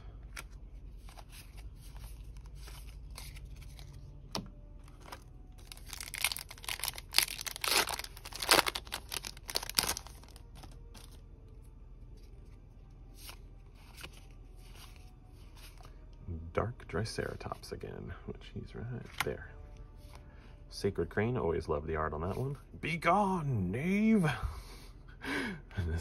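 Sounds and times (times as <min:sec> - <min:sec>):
foil wrapper crackling: 0:04.9 - 0:11.2.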